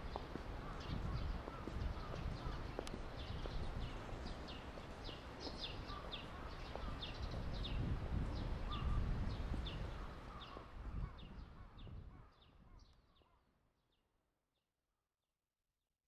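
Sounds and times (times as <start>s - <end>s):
bird chirping: 0.1s - 7.9s.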